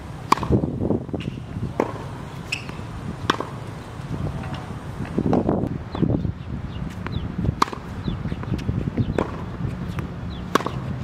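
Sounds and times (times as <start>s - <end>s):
tennis ball struck by racket: 0.2s - 3.8s, 6.9s - 11.0s
ball bouncing on hard court: 0.3s - 3.6s, 6.9s - 10.9s.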